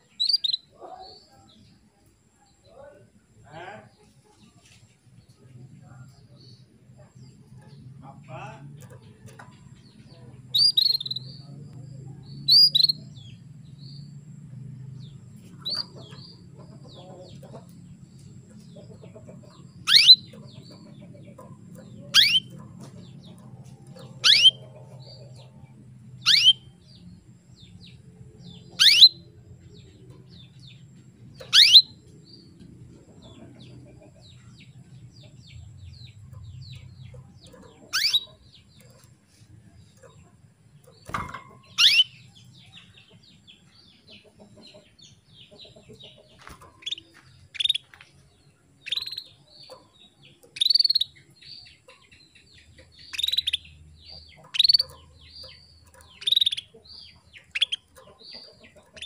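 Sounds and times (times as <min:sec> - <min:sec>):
canary chirping: 0:00.0 - 0:01.6, 0:05.7 - 0:59.0
faint low hum: 0:00.0 - 0:59.0
downward-sweeping bird calls: 0:24.2 - 0:24.6, 0:26.2 - 0:26.7, 0:28.7 - 0:29.2, 0:31.4 - 0:32.0, 0:41.7 - 0:42.3, 0:54.5 - 0:55.0.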